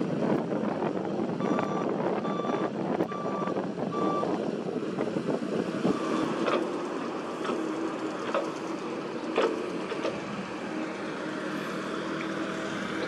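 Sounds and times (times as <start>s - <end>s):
excavator diesel engine: 0.0s - 13.0s
travel alarm beeping: 1.4s - 4.3s.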